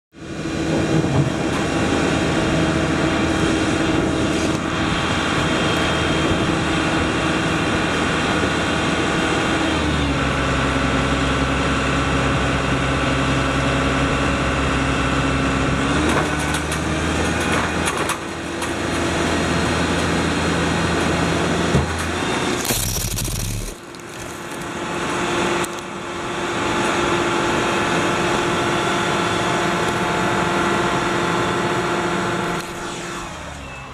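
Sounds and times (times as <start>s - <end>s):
drilling rig engine running: 0.2s - 33.8s
auger grinding through ice: 22.1s - 25.8s.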